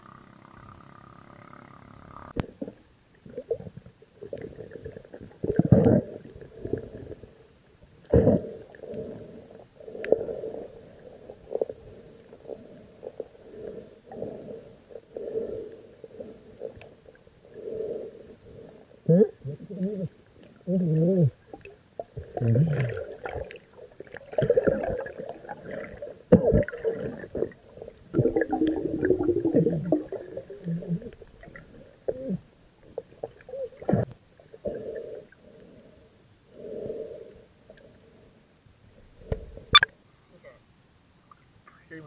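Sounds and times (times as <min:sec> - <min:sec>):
underwater gurgling and bubbling: 0:02.4 - 0:07.4, 0:21.3 - 0:35.2.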